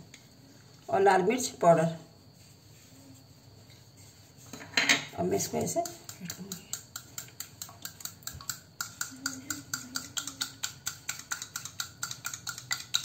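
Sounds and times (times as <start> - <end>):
metal spoon beating eggs in bowl: 5.4 - 13.0.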